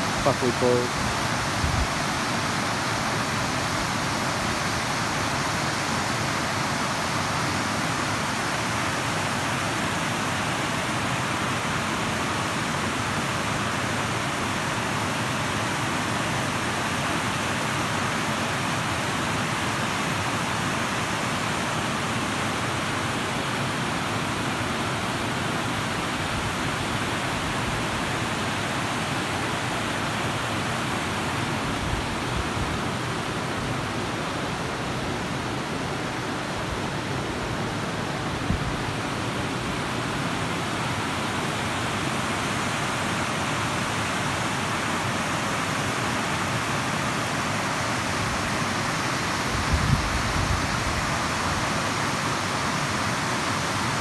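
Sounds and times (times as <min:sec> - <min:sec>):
water rushing over rock cascade: 0:00.0 - 0:54.0.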